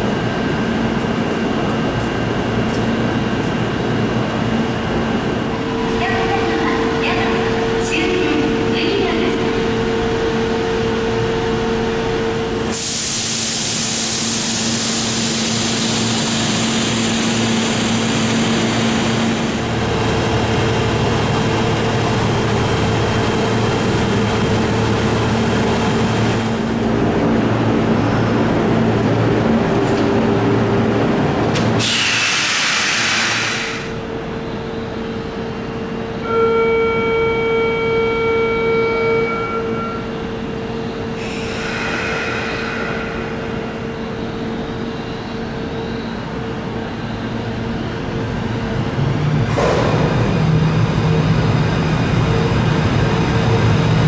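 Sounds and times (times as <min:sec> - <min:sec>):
train running noise: 0:00.0 - 0:54.0
hiss of released air: 0:12.7 - 0:16.4, 0:31.8 - 0:33.9.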